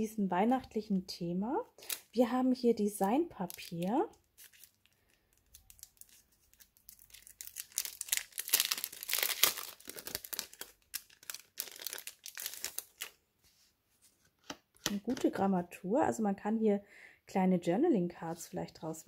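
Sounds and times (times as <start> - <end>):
packaging crinkling and tearing: 1.8 - 2.1, 3.4 - 13.2.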